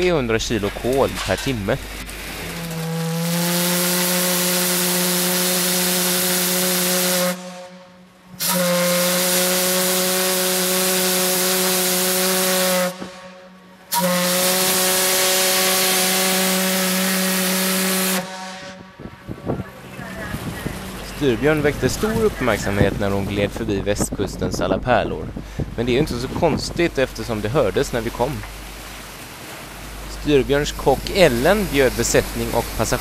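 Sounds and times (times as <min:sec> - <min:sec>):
steam whistle blasts: 0:02.5 - 0:19.0.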